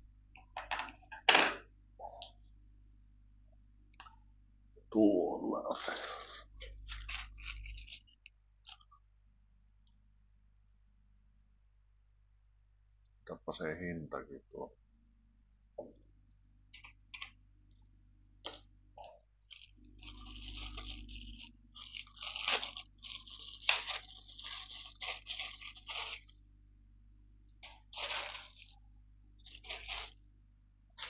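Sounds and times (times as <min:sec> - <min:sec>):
plastic bag crinkling: 0:05.6 - 0:09.0, 0:19.4 - 0:26.7, 0:27.5 - 0:30.2.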